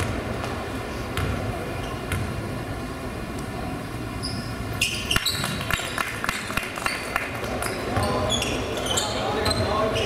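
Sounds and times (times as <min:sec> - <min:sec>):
sneakers squeaking: 0:00.0 - 0:02.6, 0:04.1 - 0:06.0, 0:06.8 - 0:10.0.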